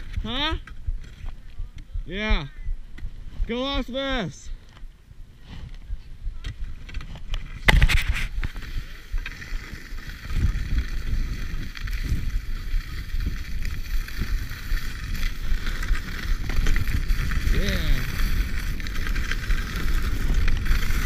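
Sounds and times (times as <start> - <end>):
wind buffeting microphone: 0.0 - 21.0
skis hissing over snow: 7.8 - 21.0.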